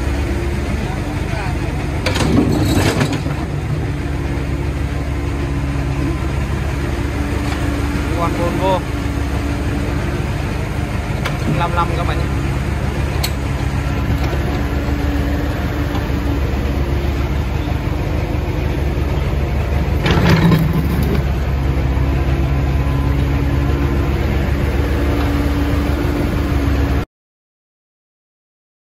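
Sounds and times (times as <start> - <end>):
excavator diesel engine running: 0.0 - 27.0
bucket digging dirt: 20.0 - 21.3.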